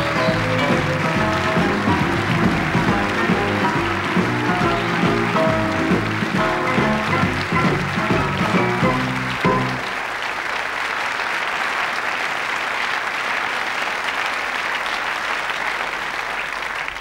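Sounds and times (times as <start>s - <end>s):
sitcom closing music: 0.0s - 10.0s
audience applauding: 0.0s - 17.0s.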